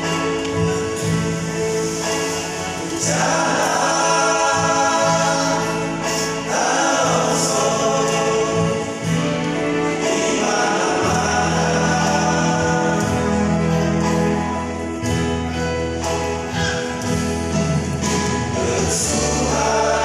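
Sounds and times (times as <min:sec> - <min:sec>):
instrumental accompaniment: 0:00.0 - 0:20.0
men singing in harmony: 0:02.6 - 0:14.5, 0:18.5 - 0:20.0.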